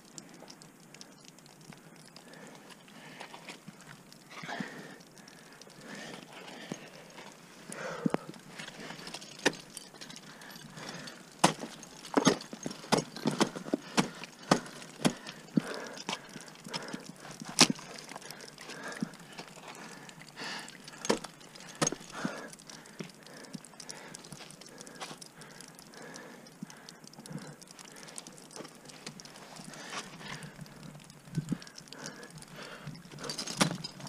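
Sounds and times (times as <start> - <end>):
climbing gear knocking and clinking: 8.2 - 25.9, 27.3 - 34.0.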